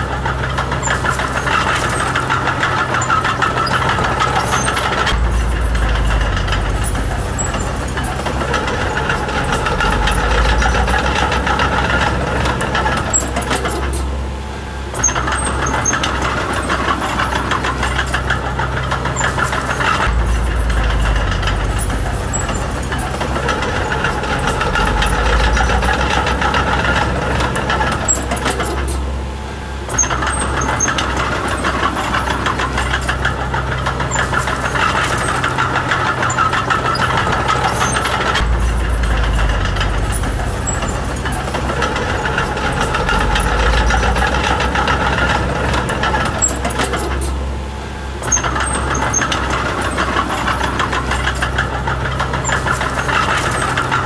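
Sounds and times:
bulldozer diesel engine working: 0.0s - 54.0s.

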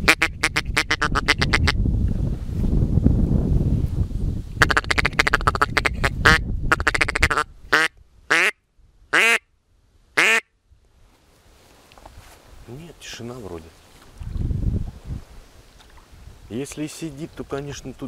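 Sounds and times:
duck call quacking: 0.0s - 1.8s, 4.6s - 9.4s, 10.2s - 10.5s.

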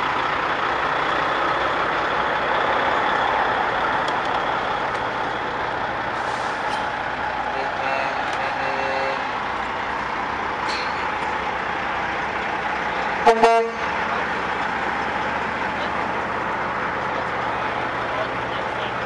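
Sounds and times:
truck diesel engine: 0.0s - 19.0s
air horn toot: 7.8s - 9.3s, 13.2s - 13.9s.

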